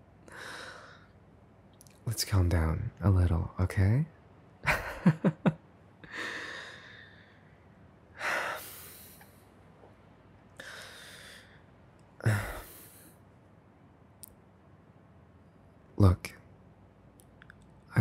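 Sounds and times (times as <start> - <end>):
man exhaling heavily: 12.2 - 13.1.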